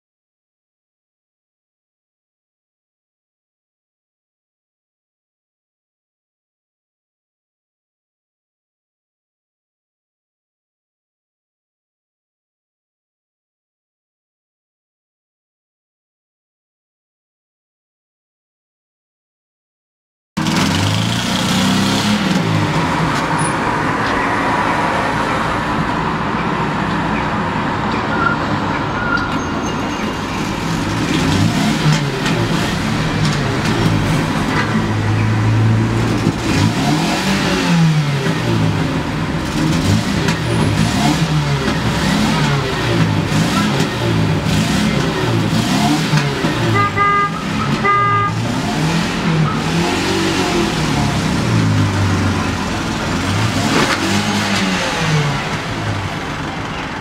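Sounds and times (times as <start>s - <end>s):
vehicles passing: 20.4s - 57.0s
car horn beeps: 46.6s - 48.5s.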